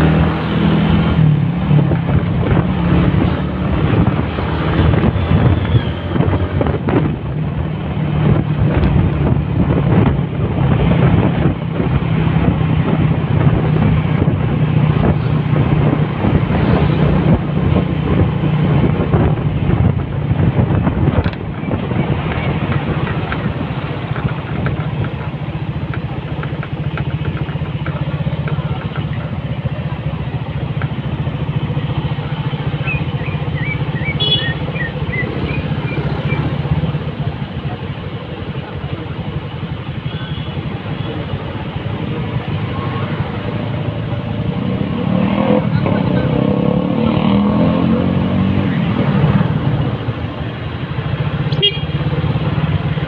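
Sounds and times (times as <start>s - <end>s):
wind rushing over microphone: 0.0s - 34.0s
motorcycle engine running: 1.1s - 46.5s.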